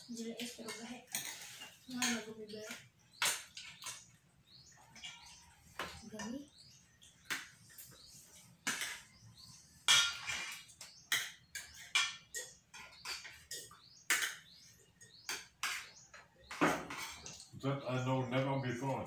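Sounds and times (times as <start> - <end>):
cutlery clinking on plates: 0.4 - 2.3, 9.8 - 17.5.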